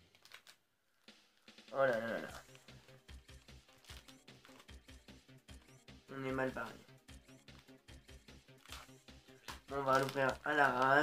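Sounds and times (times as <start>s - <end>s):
faint music with steady beat: 1.0s - 11.0s.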